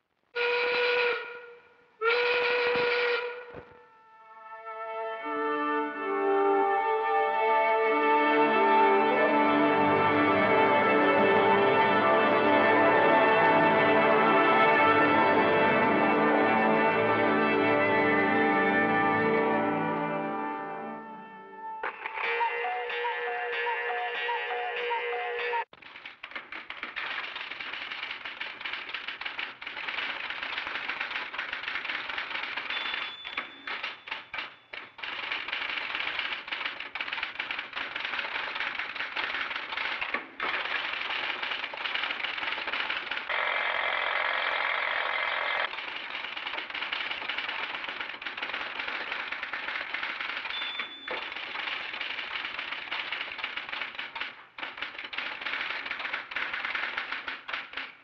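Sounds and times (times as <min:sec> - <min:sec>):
rapid mechanical clattering: 0:25.8 - 0:58.0
brief high beep: 0:50.5 - 0:51.1.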